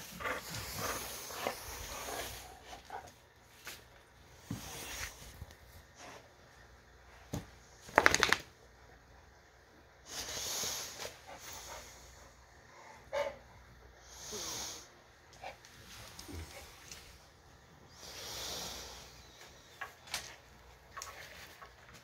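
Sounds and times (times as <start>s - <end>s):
dog snorting: 0.0s - 3.1s.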